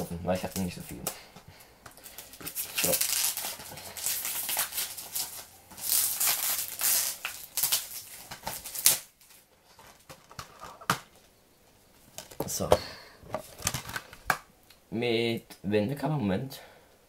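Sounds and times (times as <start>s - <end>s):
plastic wrapping crinkling and tearing: 2.0s - 10.5s.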